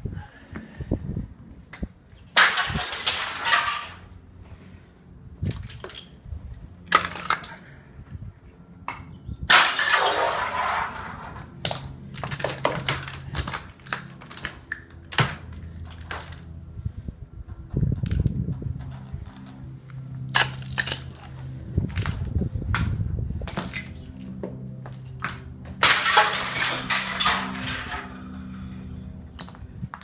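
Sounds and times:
ice cracking and shattering: 9.5 - 11.1, 25.8 - 28.2.

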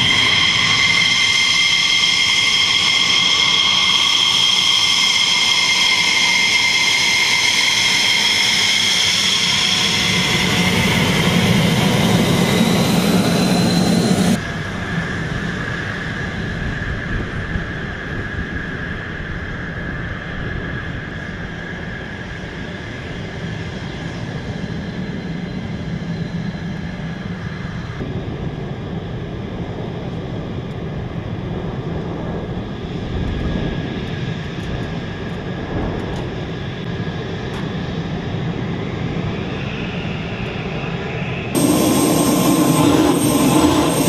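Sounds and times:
jet engine high whine: 0.0 - 44.0
jet engine idling rumble: 0.0 - 44.0.

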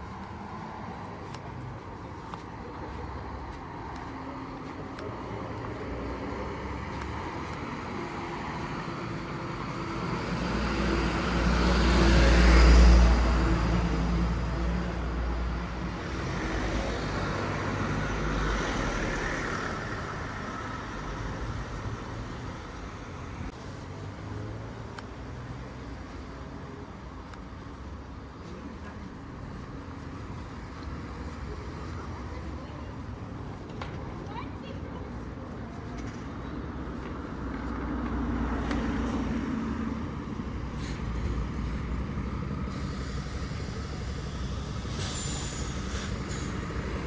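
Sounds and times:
cars passing: 0.0 - 47.0.

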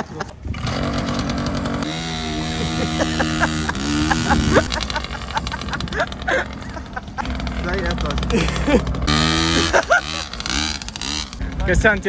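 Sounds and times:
laughter: 0.0 - 0.4, 2.2 - 7.5, 8.3 - 8.9, 9.5 - 10.3
small two-stroke engine buzzing: 0.4 - 12.0.

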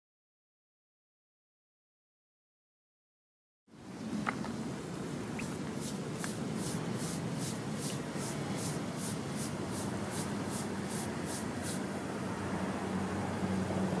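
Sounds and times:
brush scrubbing brick: 5.4 - 11.9.

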